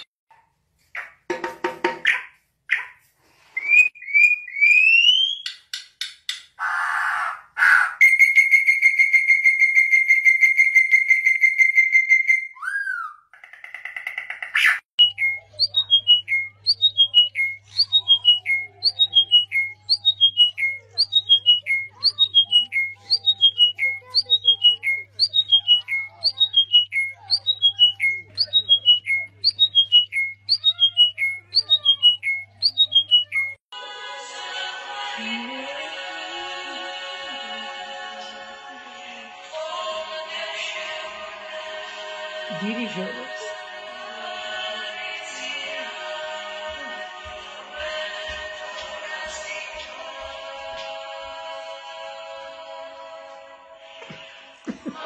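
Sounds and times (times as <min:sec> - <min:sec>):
bird singing: 0:06.6 - 0:33.6
songbird whistled notes: 0:08.0 - 0:13.2, 0:15.0 - 0:33.6.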